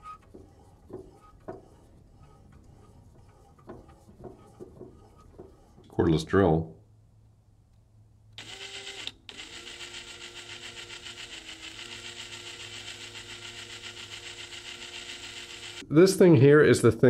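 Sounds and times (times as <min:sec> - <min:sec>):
cordless drill motor running: 0:08.4 - 0:15.8.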